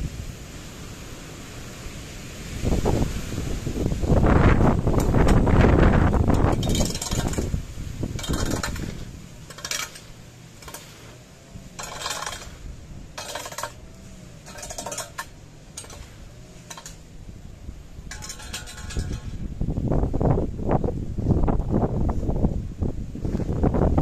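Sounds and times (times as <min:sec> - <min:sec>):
rake scraping over tarmac: 0:02.9 - 0:19.8.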